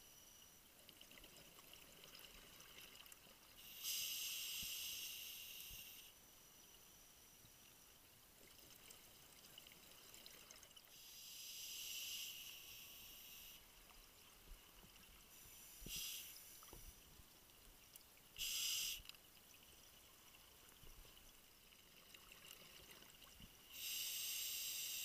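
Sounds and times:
diver breathing through regulator: 15.4 - 16.8.

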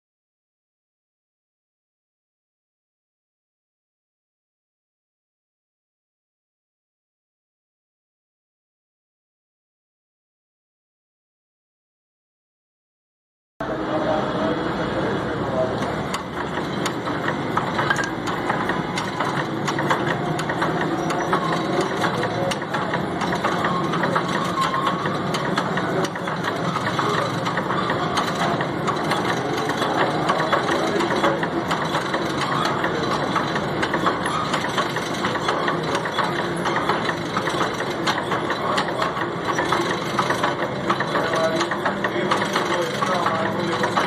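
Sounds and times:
power hacksaw cutting steel: 15.8 - 44.0.

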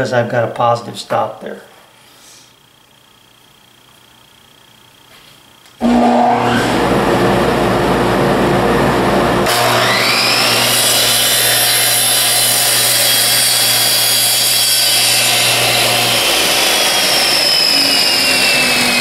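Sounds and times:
motor whine winding up: 5.7 - 8.4, 9.4 - 19.0
saw motor switching on: 5.7 - 19.0.

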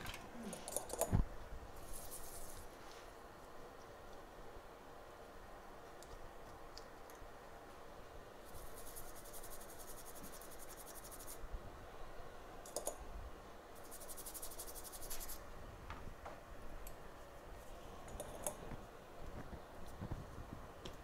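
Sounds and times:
small brush scrubbing: 1.8 - 3.2, 8.4 - 11.4, 13.8 - 15.4.

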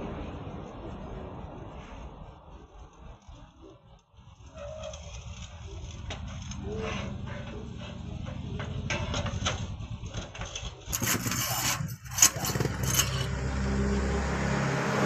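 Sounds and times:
engine running: 5.6 - 15.0.

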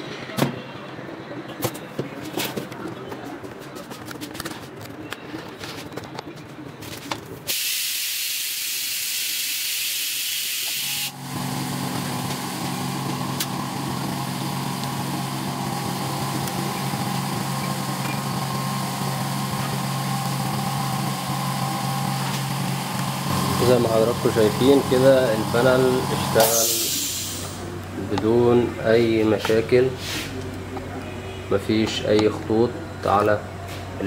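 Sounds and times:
loud steady hiss: 7.5 - 27.7.

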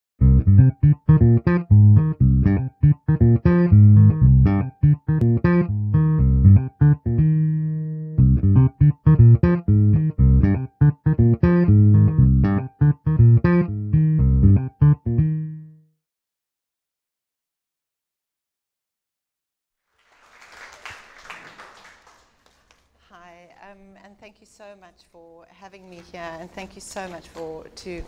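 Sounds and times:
plucked notes: 0.2 - 15.8
bass line: 0.2 - 15.9.

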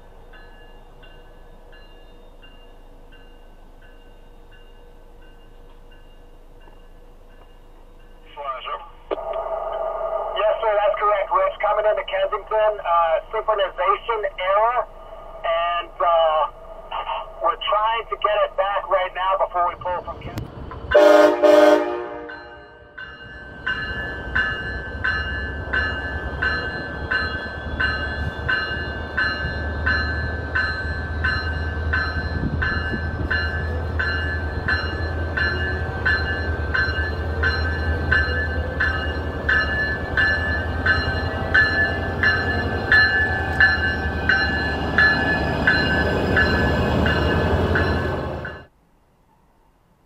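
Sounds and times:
bell ringing: 22.3 - 48.7.

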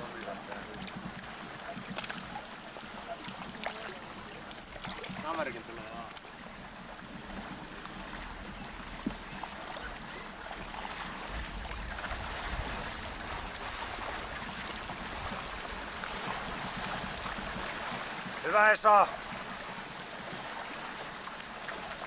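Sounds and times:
lake water washing: 0.0 - 22.0
wind noise: 11.2 - 17.7.

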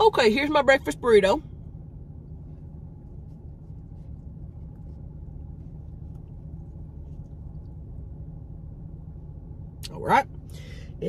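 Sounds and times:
car cabin hum: 0.0 - 11.0.

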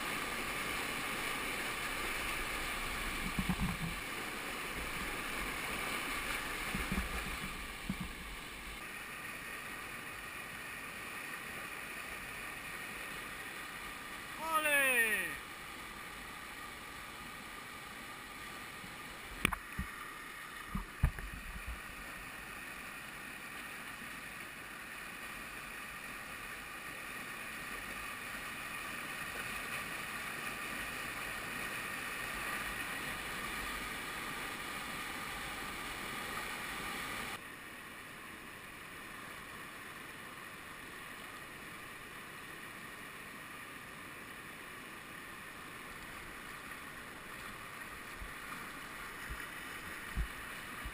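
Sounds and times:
whitewater rapids rushing: 0.0 - 15.6.

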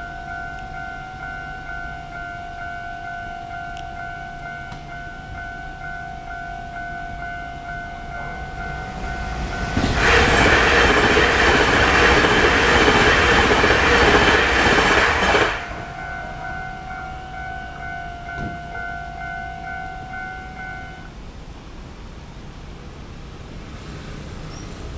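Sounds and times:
level crossing bell ringing: 0.0 - 10.0, 15.3 - 21.1
train passing at speed: 0.0 - 24.9.

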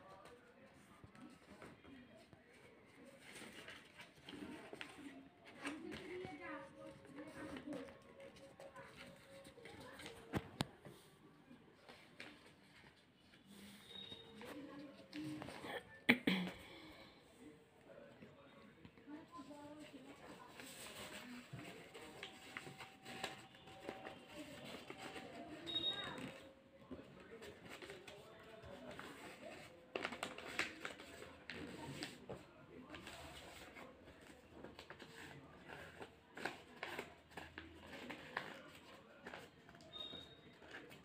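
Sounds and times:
paper rustling and creasing: 27.0 - 39.7.

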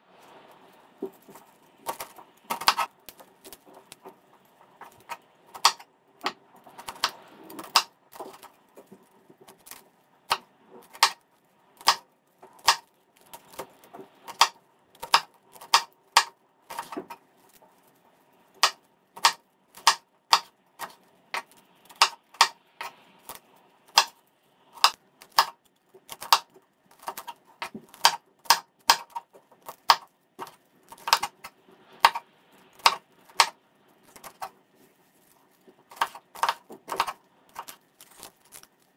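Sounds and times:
rustle of broccoli florets: 0.0 - 5.5, 6.5 - 14.3, 16.6 - 19.7, 29.2 - 38.9
knife cutting on wooden board: 1.0 - 2.9, 4.8 - 5.8, 14.3 - 17.2, 27.0 - 32.2, 32.8 - 34.5, 35.9 - 37.8.

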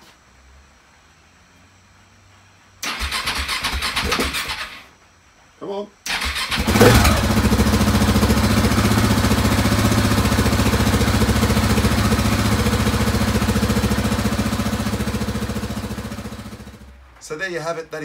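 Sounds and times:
motorcycle engine idling: 6.4 - 16.9.

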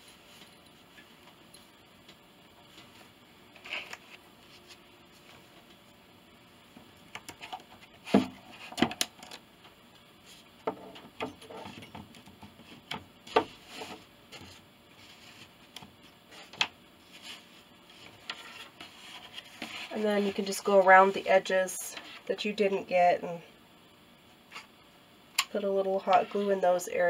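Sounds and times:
soft rubbing: 16.3 - 21.1.

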